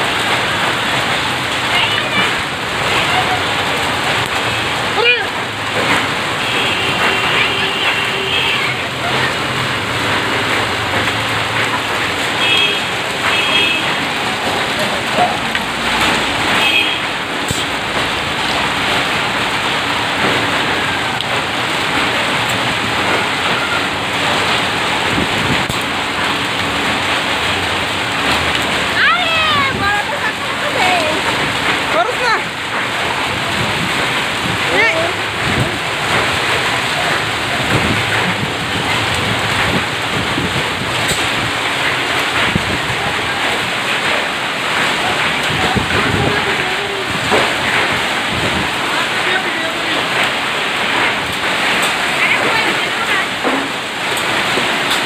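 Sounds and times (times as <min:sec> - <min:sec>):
hail and rain on a street: 0:00.0 - 0:55.0.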